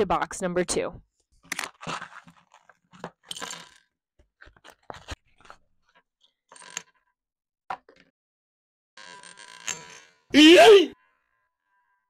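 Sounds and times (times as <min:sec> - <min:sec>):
plastic pieces clattering on wood: 0:01.5 - 0:05.6
packaging rustle: 0:01.6 - 0:03.1.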